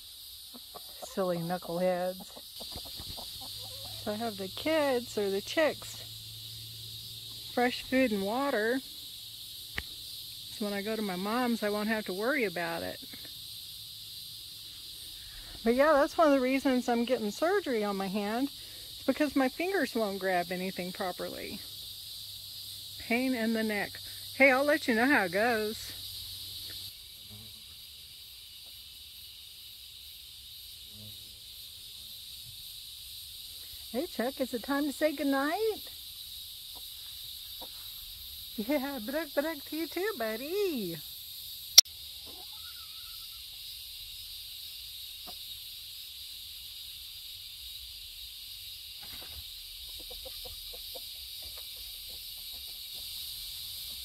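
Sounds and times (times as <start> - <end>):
crickets chirping: 0.0 - 54.0
insect chorus: 0.0 - 54.0
chickens clucking: 0.4 - 4.2, 49.8 - 53.1.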